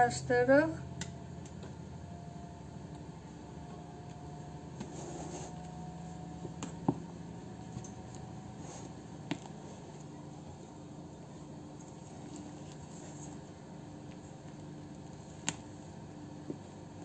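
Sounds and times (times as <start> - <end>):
spatula scraping foam: 4.8 - 5.7.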